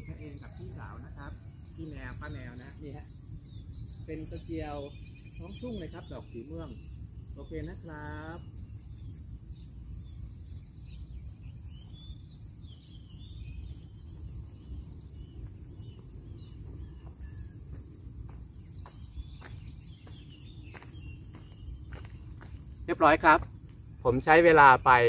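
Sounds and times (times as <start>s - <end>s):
bird chirping: 0.0s - 25.0s
high insect drone: 0.0s - 25.0s
footsteps on soil: 17.0s - 23.9s.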